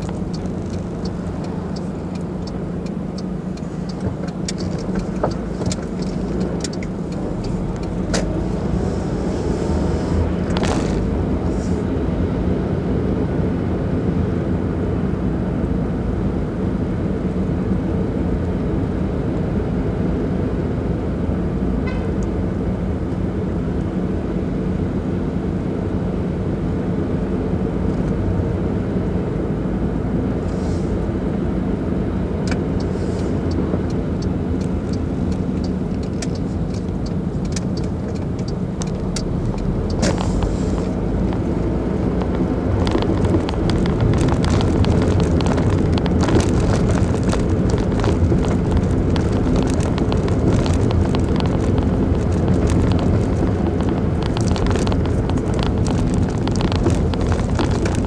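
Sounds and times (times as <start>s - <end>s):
rapid light ticks: 0.0s - 8.4s, 32.4s - 41.5s, 42.2s - 58.0s
car engine and tyre noise: 0.0s - 58.0s.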